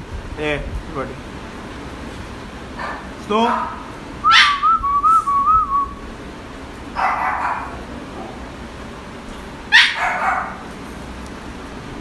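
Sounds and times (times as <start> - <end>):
puppy barking: 2.8 - 4.7, 7.0 - 8.4, 9.7 - 10.7.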